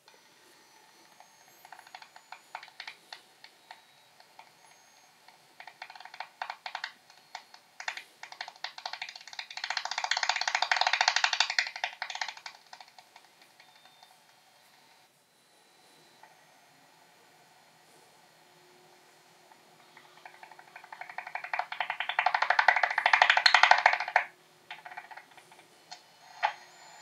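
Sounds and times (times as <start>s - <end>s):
bat echolocation ticks: 1.6s - 3.6s, 5.6s - 14.1s, 19.8s - 25.6s.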